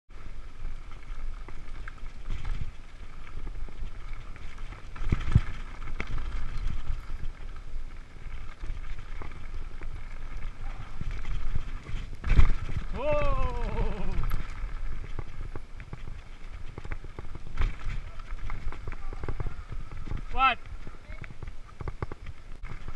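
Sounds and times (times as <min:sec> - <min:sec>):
tyres rolling on dirt: 0:00.1 - 0:22.9
bike knocks and rattles: 0:00.8 - 0:22.9
wind on microphone: 0:02.2 - 0:22.9.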